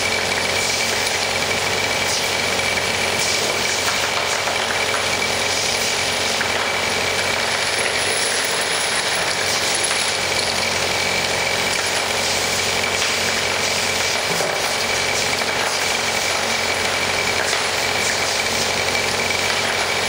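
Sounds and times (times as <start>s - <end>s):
tiles rattling on vibrating conveyor: 0.8s - 20.0s
machine hum: 4.9s - 13.5s.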